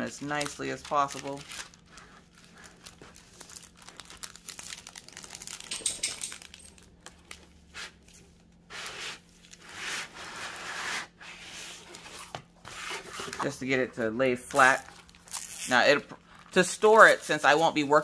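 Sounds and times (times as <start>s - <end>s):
plastic film crinkling: 0.0s - 7.6s, 14.5s - 17.1s.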